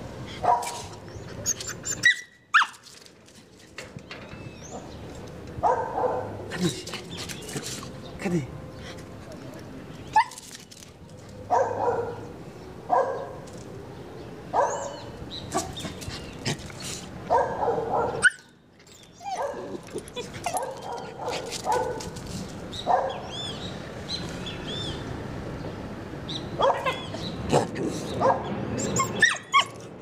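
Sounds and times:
dog barking: 5.6s - 6.4s, 11.5s - 12.2s, 12.9s - 13.3s, 14.6s - 15.7s, 17.3s - 18.4s, 22.9s - 23.3s, 26.6s - 27.1s.

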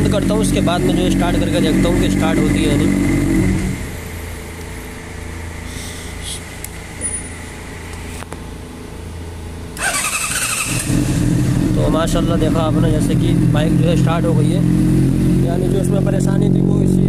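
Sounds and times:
motorcycle engine running: 0.0s - 5.6s, 9.0s - 17.0s
electric radiator fan hum: 0.0s - 17.0s
starter motor cranking: 9.8s - 11.4s
motorcycle engine switching off: 9.8s - 15.4s.

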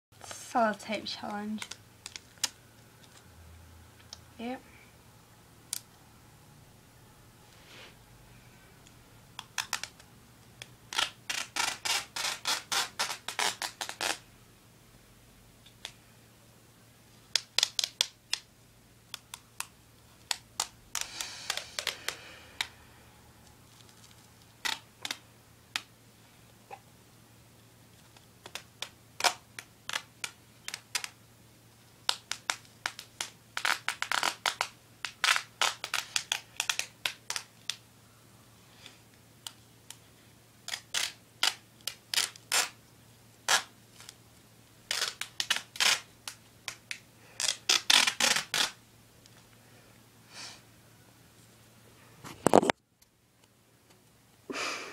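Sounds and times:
sticky tape ripping off roll: 9.3s - 14.3s, 17.3s - 18.5s, 19.1s - 22.7s, 23.7s - 25.9s, 28.1s - 31.2s, 32.0s - 37.8s, 40.6s - 42.8s, 43.4s - 44.2s, 44.8s - 48.8s.

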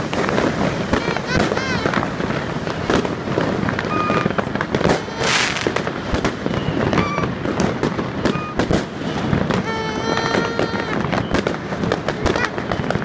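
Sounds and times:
fireworks bangs and crackles: 0.0s - 13.0s
fireworks hissing burst: 0.0s - 13.0s.

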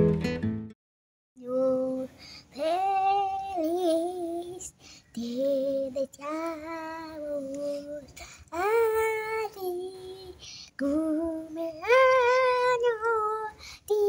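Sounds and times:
boy singing unaccompanied: 1.4s - 14.0s.

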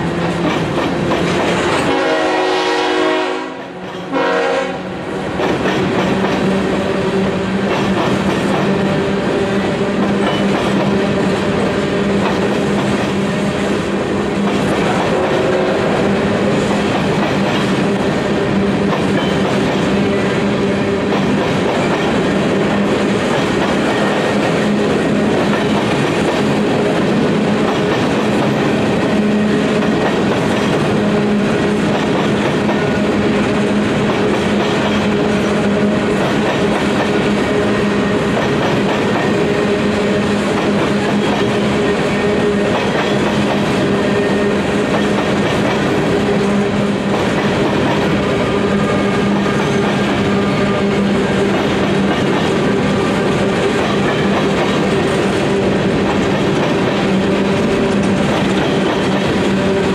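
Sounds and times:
freight train rolling past: 0.0s - 59.9s
train horn blasts: 1.7s - 5.1s, 15.0s - 16.2s, 48.2s - 51.2s.

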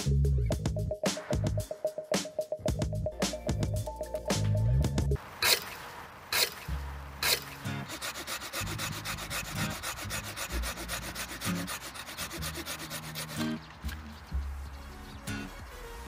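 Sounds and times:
hand saw rasping through wood: 7.2s - 13.6s.

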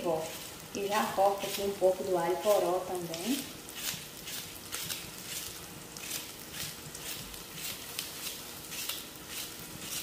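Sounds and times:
knife slicing on cutting board: 3.7s - 10.0s.

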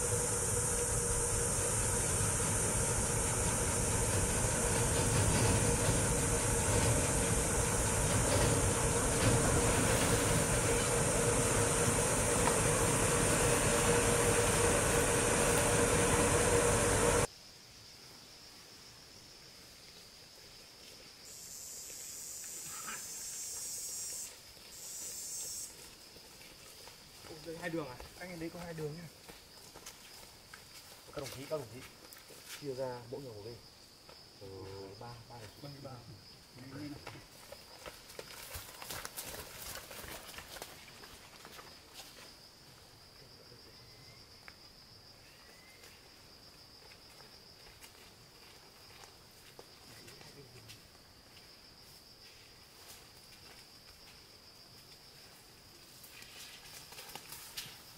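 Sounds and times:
insect hissing buzz: 0.0s - 17.3s, 21.2s - 25.8s
insects chirring: 0.0s - 57.9s.

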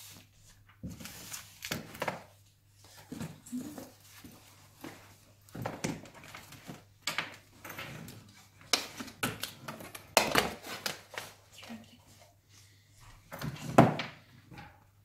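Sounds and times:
paper rustling: 0.0s - 5.2s
objects knocking and clattering: 3.0s - 11.1s, 13.2s - 15.0s.

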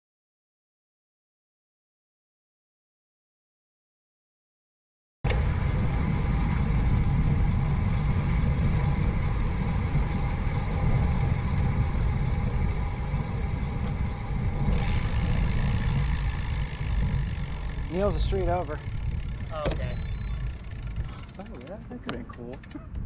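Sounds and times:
wind rumble on microphone: 5.3s - 20.0s, 22.6s - 23.0s.

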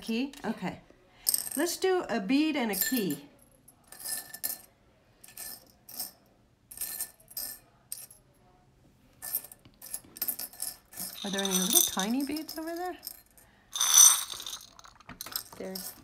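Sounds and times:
beads and charms clinking: 9.2s - 16.0s.

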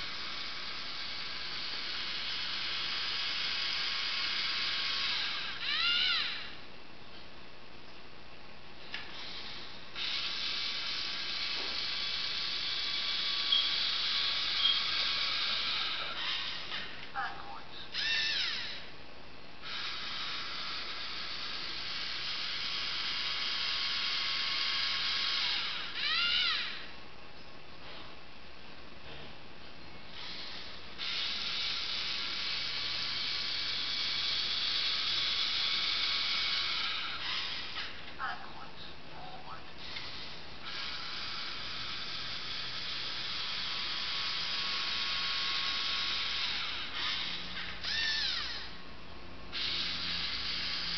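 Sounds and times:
servo motors and gears whirring: 0.0s - 6.5s, 8.9s - 17.0s, 17.9s - 18.9s, 19.6s - 26.9s, 30.1s - 38.0s, 39.8s - 48.8s, 49.5s - 50.9s
short high squeaks: 13.3s - 17.0s, 46.5s - 48.8s.

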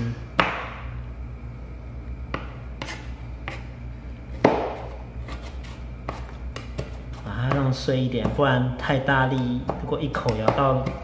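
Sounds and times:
knife tapping on plastic board: 9.3s - 11.0s.

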